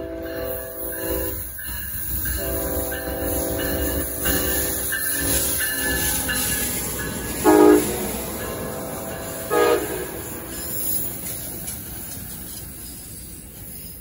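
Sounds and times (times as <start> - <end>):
locomotive horn blasts: 0.0 - 1.4, 2.3 - 5.0, 7.4 - 10.4
rumble of passing train cars: 0.0 - 14.0.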